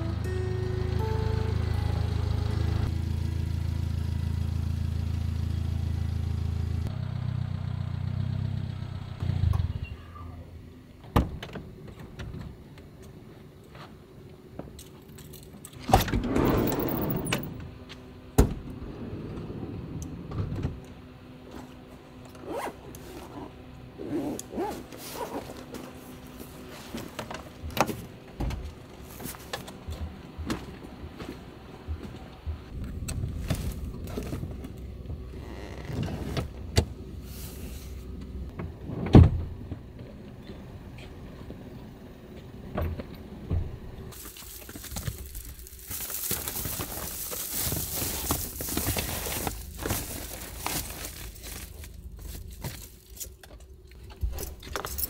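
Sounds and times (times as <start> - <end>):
low steady drone: 0.0 - 4.8
bags and gear being moved: 22.4 - 27.2, 44.1 - 53.4
rustling scrape: 44.1 - 53.2.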